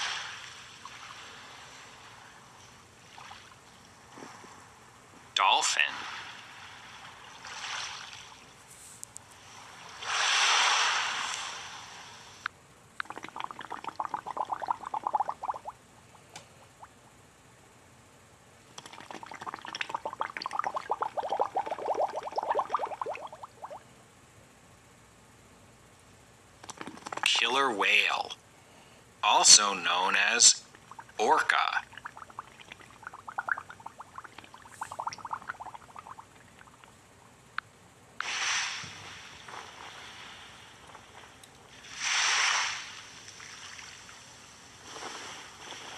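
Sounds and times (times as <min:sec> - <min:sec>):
rush of water-like noise: 0:00.0 - 0:02.4, 0:09.4 - 0:12.5, 0:38.2 - 0:45.9
rising bubble-like blips: 0:13.0 - 0:15.8, 0:18.8 - 0:23.8, 0:31.8 - 0:36.8.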